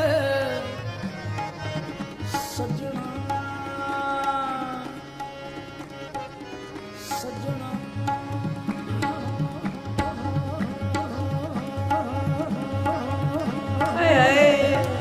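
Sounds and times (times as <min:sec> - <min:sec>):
man singing: 0:00.0 - 0:00.9, 0:02.3 - 0:05.2, 0:07.0 - 0:15.0
harmonium drone: 0:00.0 - 0:15.0
tabla beat: 0:00.0 - 0:15.0.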